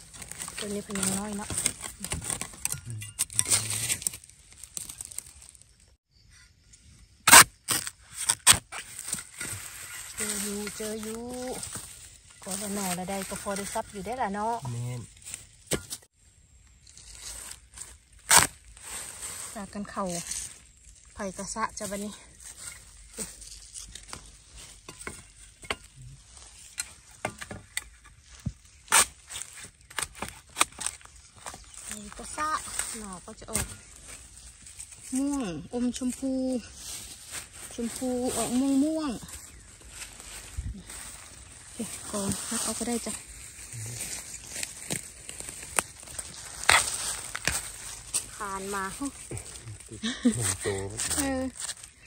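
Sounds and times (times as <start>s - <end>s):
rustling in leaf litter: 0.0s - 2.7s, 3.3s - 5.9s, 8.2s - 15.6s, 16.9s - 24.9s, 28.2s - 52.0s
crackling leaves: 0.0s - 6.0s, 7.3s - 52.0s
spade scraping into soil: 0.5s - 4.9s
spade chopping bamboo: 7.2s - 14.4s, 24.0s - 25.9s, 26.7s - 31.9s.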